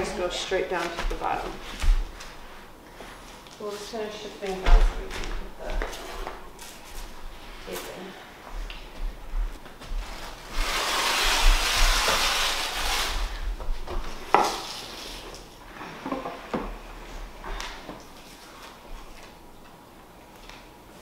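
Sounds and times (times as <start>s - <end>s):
tape ripping off roll: 10.2s - 13.4s.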